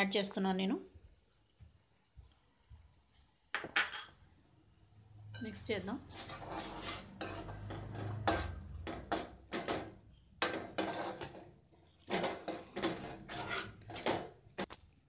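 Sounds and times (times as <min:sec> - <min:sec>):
metal spoon scraping metal pan: 0:05.3 - 0:14.7.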